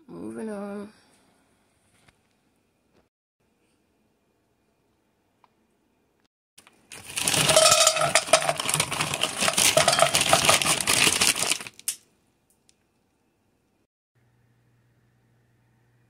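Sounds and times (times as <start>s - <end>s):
frozen berries clattering into pan: 6.9s - 12.0s.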